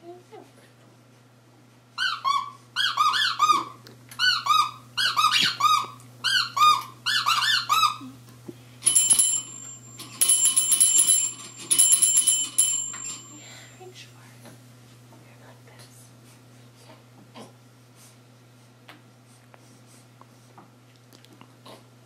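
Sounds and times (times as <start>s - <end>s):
toy bell ringing: 8.8s - 13.8s.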